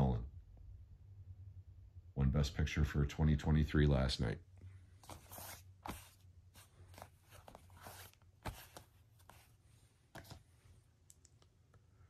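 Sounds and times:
faint low hum: 0.0s - 12.0s
plastic case handled on blanket: 5.0s - 10.5s.

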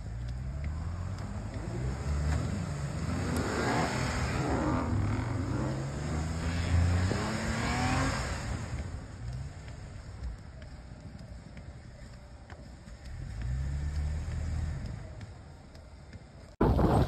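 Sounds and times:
pickup truck engine revving: 1.0s - 8.8s.

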